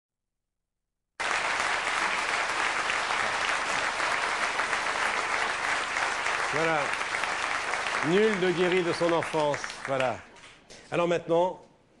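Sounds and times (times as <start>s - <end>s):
studio audience applauding: 1.2s - 10.6s.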